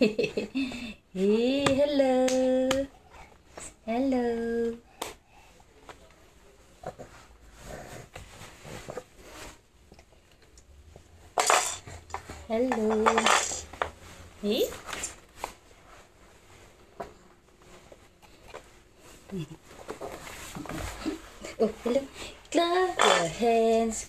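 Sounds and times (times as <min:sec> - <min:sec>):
plastic toy clattering on wood floor: 0:12.7 - 0:13.9.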